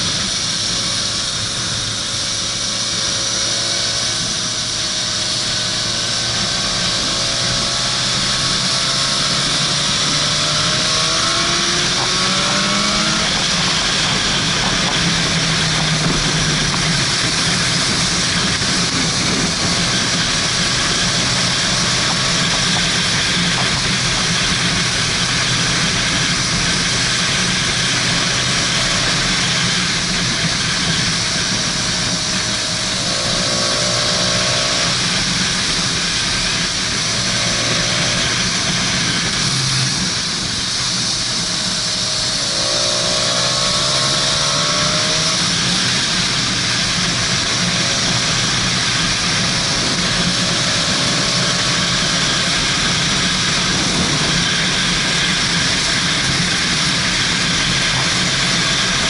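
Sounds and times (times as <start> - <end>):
motorcycle engine running: 0.0 - 59.0
wind rushing on microphone: 6.3 - 59.0.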